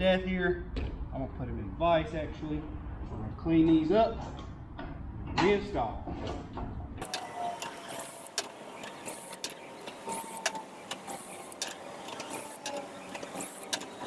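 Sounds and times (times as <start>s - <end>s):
drill with wire wheel scrubbing bolts: 7.0s - 14.0s
scattered clicks: 7.0s - 14.0s.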